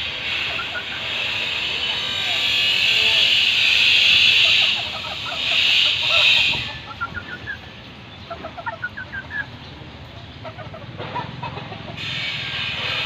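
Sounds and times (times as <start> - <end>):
steady high buzz: 0.0 - 9.9
chickens clucking softly: 0.2 - 13.0.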